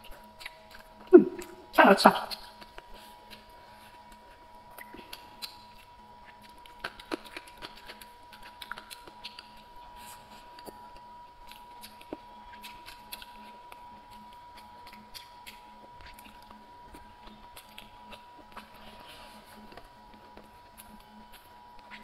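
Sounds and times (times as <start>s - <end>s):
faint high hum: 0.0s - 22.0s
wet chewing mouth clicks: 0.0s - 22.0s.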